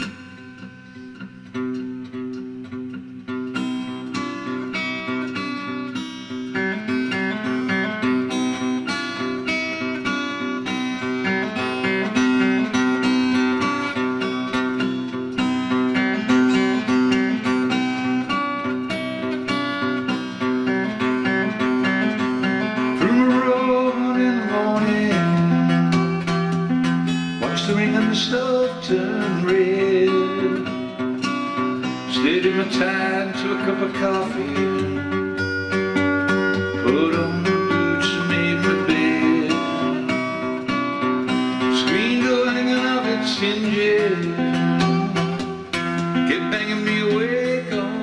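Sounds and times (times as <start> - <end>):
acoustic guitar picking chords: 0.0 - 48.0
person singing: 23.0 - 25.6, 27.4 - 30.8, 32.1 - 35.3, 36.7 - 40.4, 41.7 - 45.7, 46.3 - 48.0.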